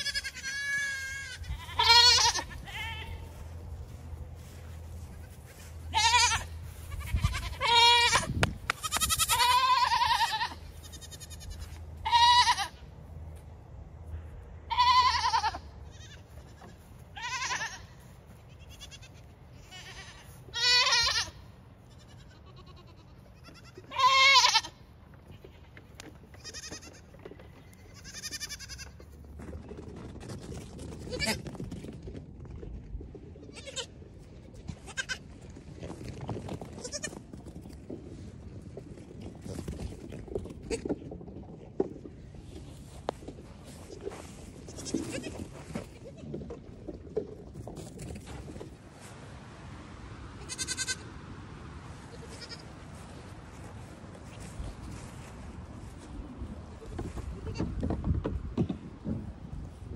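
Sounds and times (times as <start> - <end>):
goat kids bleating: 0.0 - 4.0, 4.9 - 12.9, 14.7 - 29.2, 33.4 - 34.0, 34.8 - 35.2, 36.8 - 37.2, 43.8 - 46.4, 50.4 - 51.2, 52.0 - 53.1.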